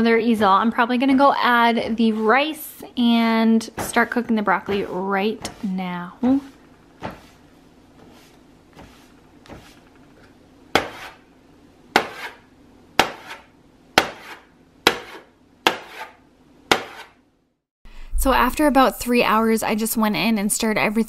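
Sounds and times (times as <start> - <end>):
chalk knocking on chalkboard: 4.7 - 5.8, 6.4 - 7.4, 8.0 - 9.8, 10.8 - 11.2, 12.0 - 12.4, 13.0 - 17.2.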